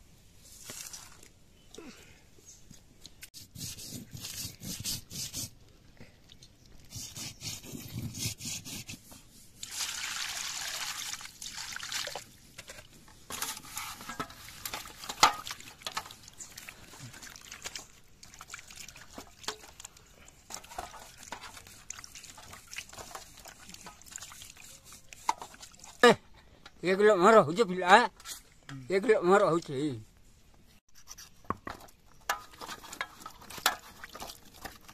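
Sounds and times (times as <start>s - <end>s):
water sloshing and splashing: 9.6s - 26.0s.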